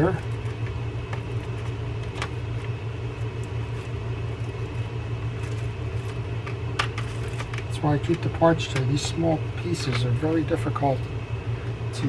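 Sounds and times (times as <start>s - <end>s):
low mechanical hum: 0.0s - 12.0s
faint clicks of reel parts: 5.4s - 10.2s.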